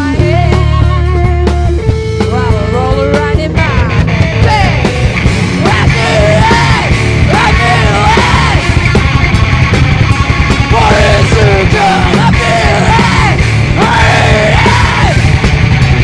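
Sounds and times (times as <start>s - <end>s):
heavy rock band playing: 0.0s - 16.0s
person screaming vocals: 12.0s - 15.2s.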